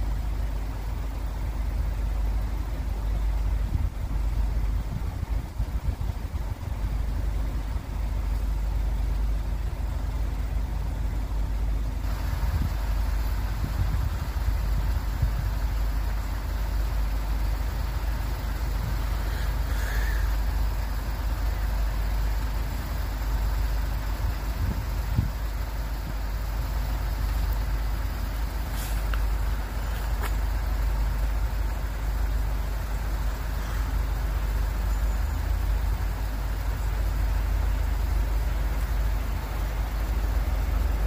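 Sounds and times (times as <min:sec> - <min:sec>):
traffic rumble: 0:00.0 - 0:41.0
tyre hiss: 0:27.6 - 0:30.8.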